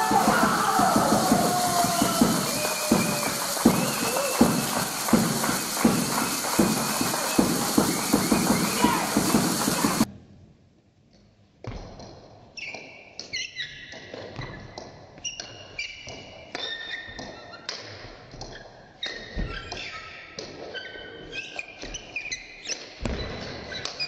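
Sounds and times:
sports shoes squeaking on floor: 11.8 - 24.0.

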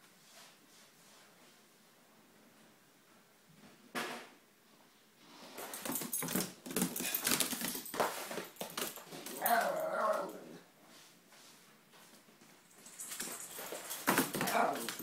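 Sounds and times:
dog paws scuffing and thudding on floor: 5.4 - 15.0
dog whining: 9.3 - 10.6.

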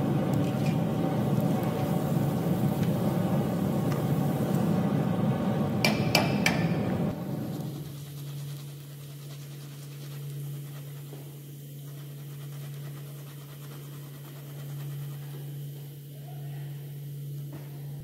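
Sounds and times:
hot oil sizzling faintly: 0.0 - 13.0
steady low hum: 0.0 - 18.0.

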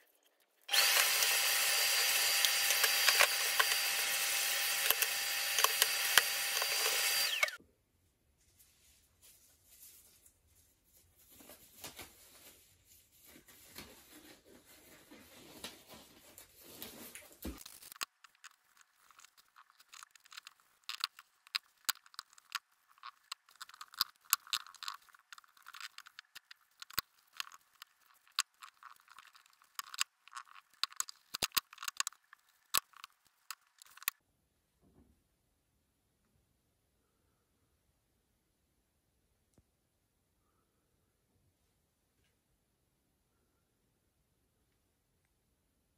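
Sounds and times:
soft rustling: 8.4 - 21.4.

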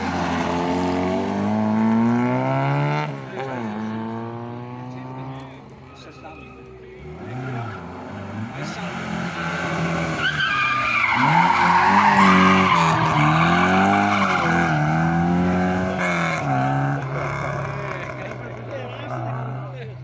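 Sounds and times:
rally car engine revving: 0.0 - 6.3, 6.9 - 20.0
tyres squealing: 5.7 - 15.0.

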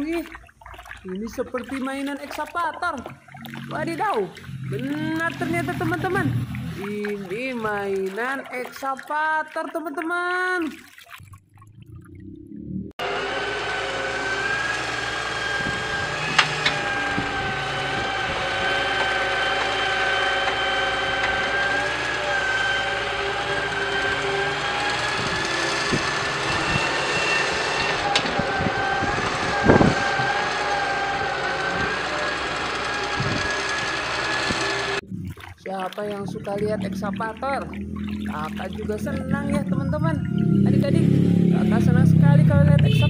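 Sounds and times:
excavator engine running: 0.0 - 8.5, 11.8 - 43.0
high even whine: 12.4 - 35.5.

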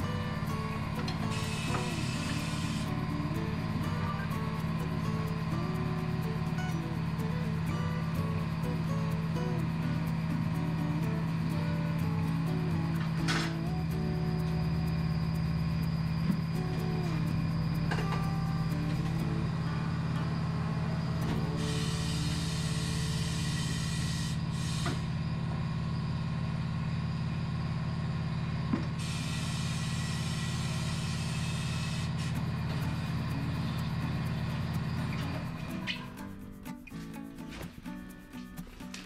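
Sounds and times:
tyre changer machine humming: 0.0 - 39.0
hiss: 1.2 - 4.0, 21.3 - 25.2, 29.0 - 36.3.

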